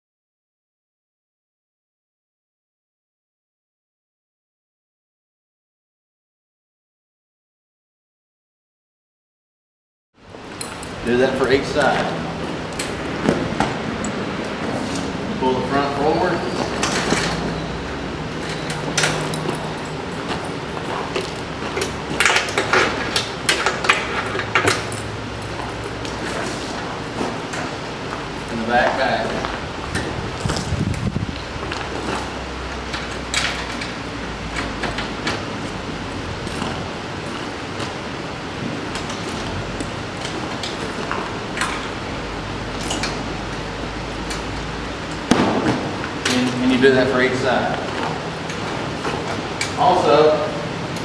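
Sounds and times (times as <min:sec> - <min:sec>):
steady background hiss: 0:10.2 - 0:51.0
metal strap hooks clinking: 0:10.5 - 0:12.1, 0:18.3 - 0:27.8, 0:32.0 - 0:37.9, 0:42.7 - 0:44.5
heavy tarp rustling: 0:11.0 - 0:51.0.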